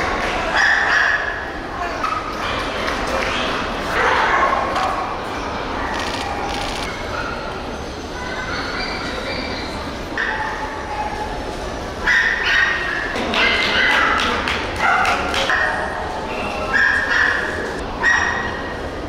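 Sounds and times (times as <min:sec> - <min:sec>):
dogs yipping and barking: 0:16.7 - 0:18.8.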